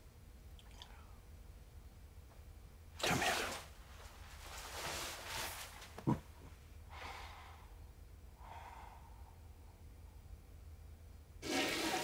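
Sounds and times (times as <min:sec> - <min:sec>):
quiet breathing: 0:06.8 - 0:10.4.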